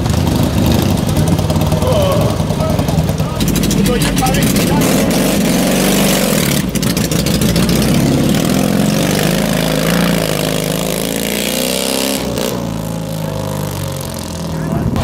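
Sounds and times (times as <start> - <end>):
motorcycle engine pulling away: 0.0 - 15.0.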